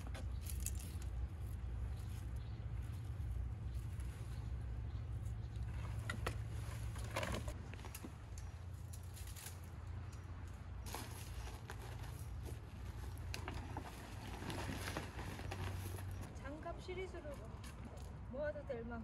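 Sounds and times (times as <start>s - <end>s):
debris rustling and clicking: 0.0s - 1.6s.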